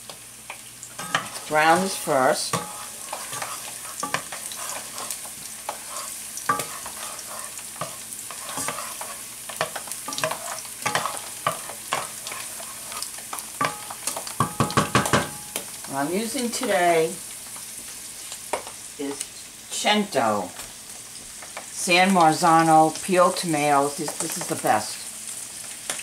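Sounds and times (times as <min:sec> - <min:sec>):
garlic sizzling in oil: 0:00.0 - 0:26.0
wooden spoon scraping a pan: 0:01.0 - 0:14.8.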